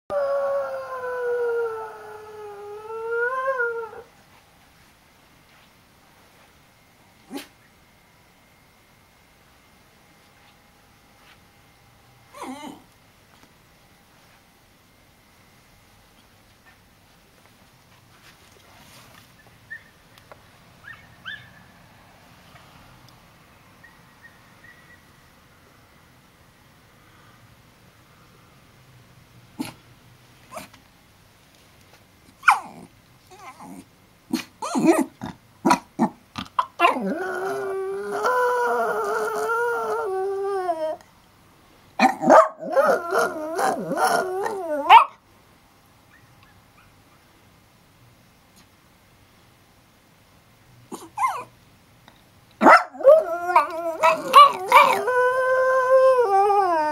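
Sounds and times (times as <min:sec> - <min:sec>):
dog whining: 0:07.3 - 0:07.5, 0:12.3 - 0:12.9, 0:32.4 - 0:41.0, 0:42.0 - 0:45.1, 0:50.9 - 0:51.5, 0:52.6 - 0:56.9.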